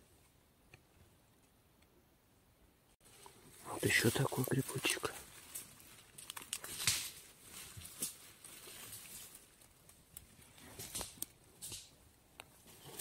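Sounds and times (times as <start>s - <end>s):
dry grass and leaves rustling: 3.0s - 13.0s
small twigs snapping: 5.4s - 12.5s.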